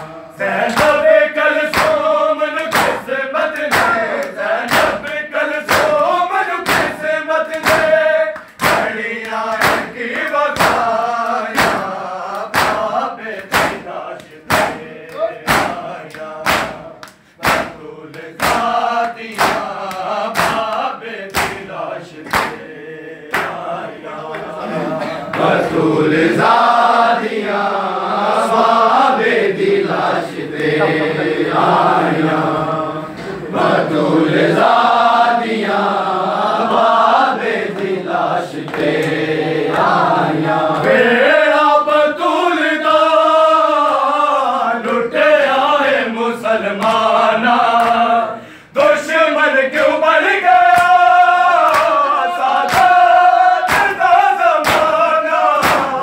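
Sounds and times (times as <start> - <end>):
men chanting in unison: 0.0 - 56.0
men striking chests: 10.6 - 21.7
person singing lament: 30.6 - 31.4.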